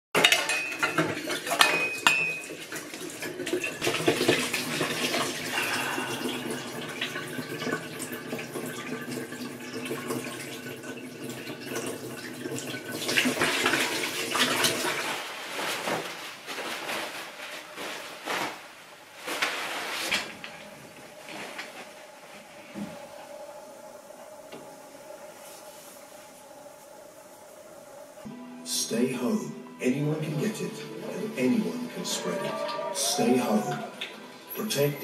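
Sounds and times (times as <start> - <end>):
plates and cutlery clinking: 0.2 - 5.3
brush scrubbing dishes: 0.2 - 7.8.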